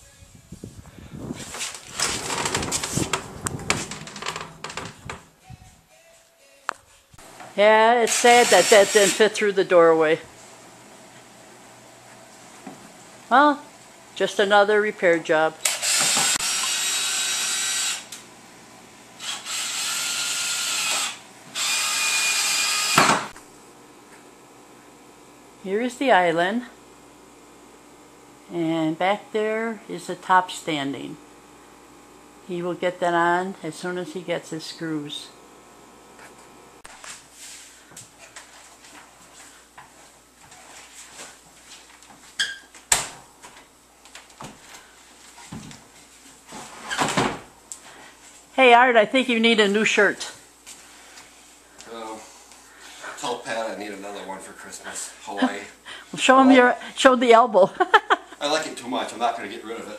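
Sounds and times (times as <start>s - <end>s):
wood squeak: 1.9s - 5.2s
cordless drill motor whining: 15.6s - 18.2s, 19.2s - 23.3s
drill sharp click: 15.6s - 18.2s, 19.2s - 23.4s.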